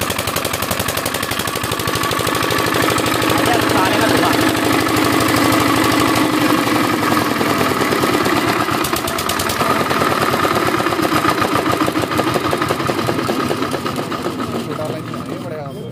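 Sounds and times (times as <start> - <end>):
generator engine chugging: 0.0 - 15.9.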